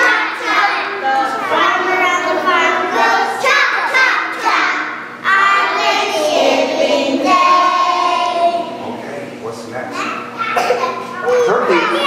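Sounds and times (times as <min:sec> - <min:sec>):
young children singing: 0:00.0 - 0:08.8.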